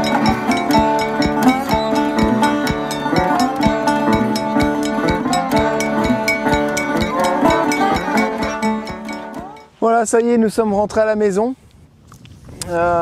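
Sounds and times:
plucked strings background music: 0:00.0 - 0:09.8.

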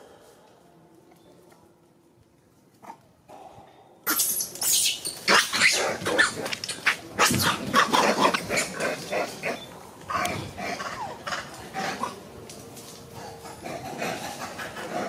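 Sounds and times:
monkeys screaming and squealing: 0:04.1 - 0:12.1.

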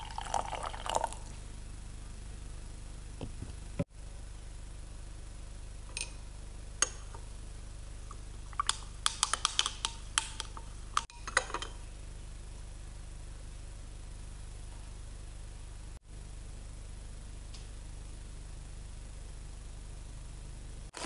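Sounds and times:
steady low hum: 0:00.0 - 0:20.9.

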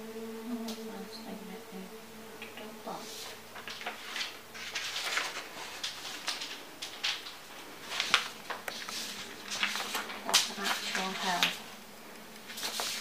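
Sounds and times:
paper sheets rustling: 0:03.0 - 0:11.8, 0:12.4 - 0:13.0.

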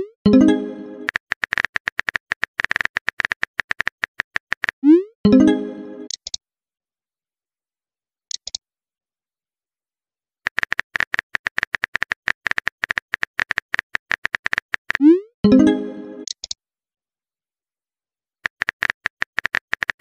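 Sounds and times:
phone keyboard typing clicks: 0:01.0 - 0:04.8, 0:10.5 - 0:15.0, 0:16.2 - 0:16.6, 0:18.4 - 0:20.0.

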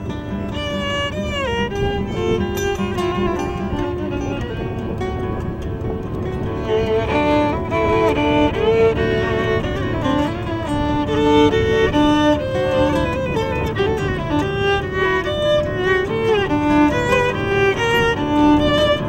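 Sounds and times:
acoustic guitar accompaniment: 0:00.0 - 0:19.0
bowed violin melody: 0:00.0 - 0:19.0.

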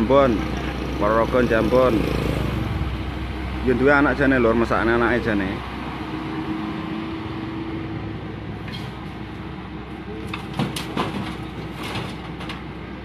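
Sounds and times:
excavator diesel hum: 0:00.0 - 0:13.0
short knocks and rattles: 0:10.3 - 0:12.7.

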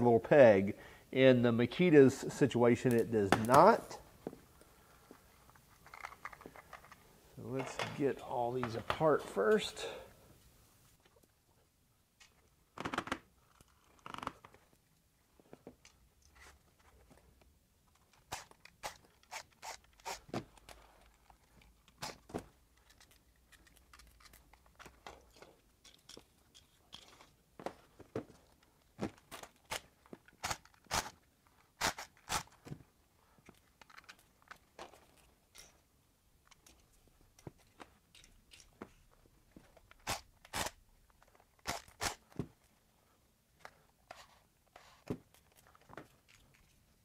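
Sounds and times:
plastic battery housings clicking: 0:22.7 - 0:27.3, 0:33.4 - 0:35.8.

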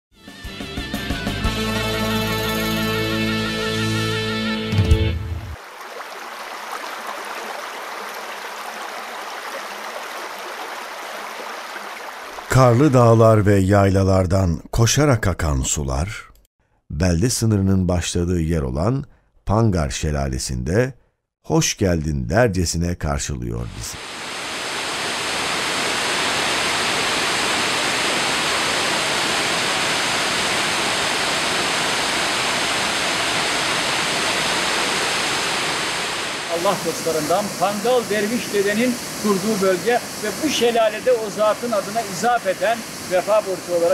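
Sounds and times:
waterfall rushing: 0:05.6 - 0:12.6, 0:24.0 - 0:43.9.

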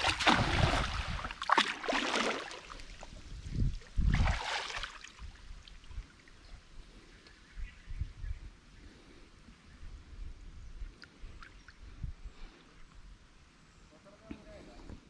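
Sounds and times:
cast net splashing on water: 0:00.0 - 0:02.8, 0:04.0 - 0:05.2
water splashing from wading: 0:00.0 - 0:03.1, 0:04.0 - 0:05.8.

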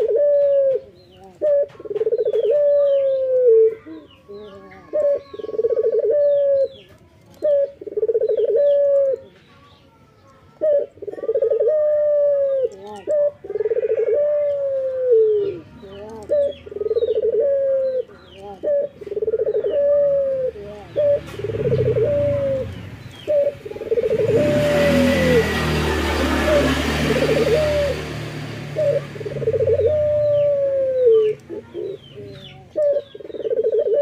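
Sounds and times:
dove cooing: 0:00.0 - 0:09.3, 0:10.5 - 0:34.0
small birds chirping: 0:00.0 - 0:34.0.

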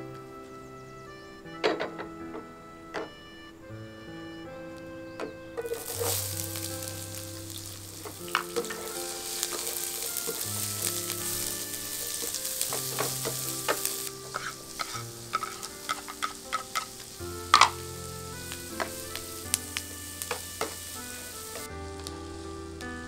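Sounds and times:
onions sizzling in a pan: 0:05.6 - 0:23.0
wooden spatula clicking on pan: 0:12.8 - 0:17.0.

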